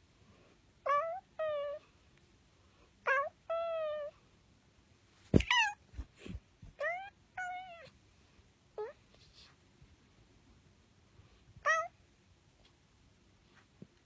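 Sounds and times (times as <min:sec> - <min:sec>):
kitten meowing: 0:11.6 - 0:11.9.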